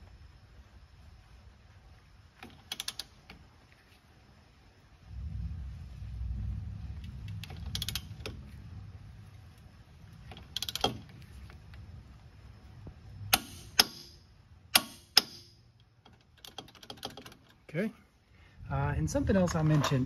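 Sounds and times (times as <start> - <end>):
torque wrench clicks: 2.4 - 3.2, 10.3 - 11.1, 14.8 - 17.6.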